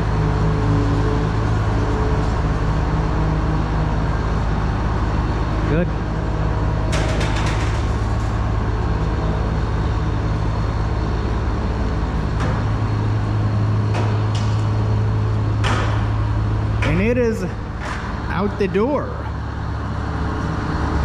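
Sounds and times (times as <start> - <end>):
combine diesel engine running: 0.0 - 21.0
clanks and rattles: 6.8 - 9.1, 13.8 - 14.9, 15.5 - 18.3.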